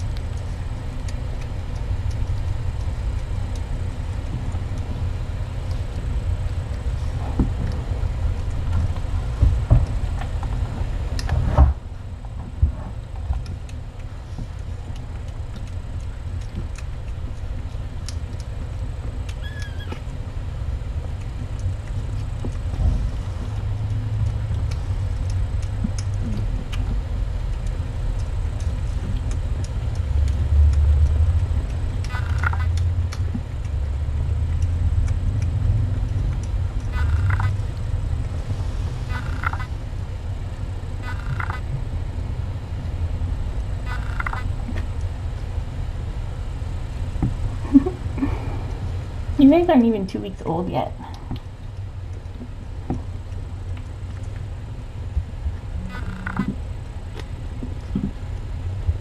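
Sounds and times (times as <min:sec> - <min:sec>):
low steady rumble: 0:00.0 - 0:59.0
kittens mewing: 0:19.3 - 0:20.1.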